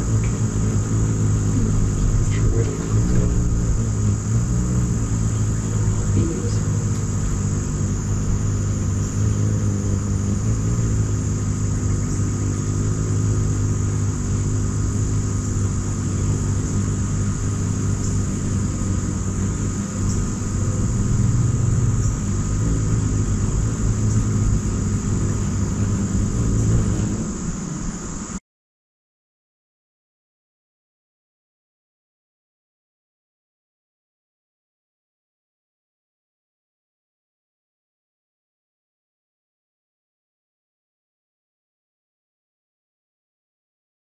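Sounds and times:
hummingbird wingbeats humming: 0.0s - 28.4s.

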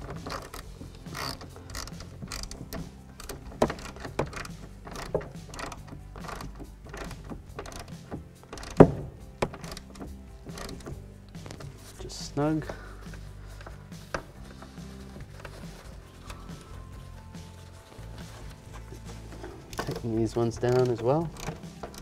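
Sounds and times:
ratchet pawl clicking: 0.0s - 11.5s, 19.4s - 22.0s.

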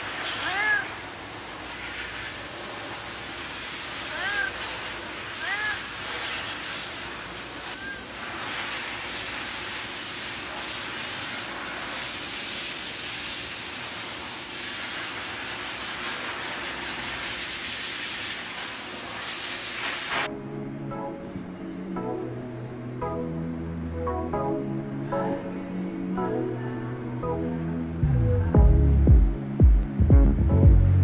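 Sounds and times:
background hiss: 0.0s - 20.3s
faint cat meow: 0.4s - 1.0s, 4.1s - 4.7s, 5.4s - 5.9s.

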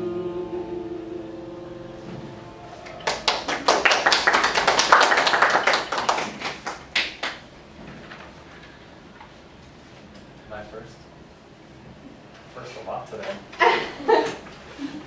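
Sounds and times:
piano chord: 0.0s - 5.0s
small group clapping: 2.8s - 7.5s.

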